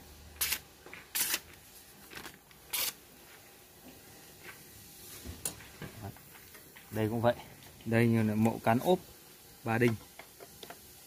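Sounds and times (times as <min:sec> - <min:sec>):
knife slicing paper: 0:02.7 - 0:03.0.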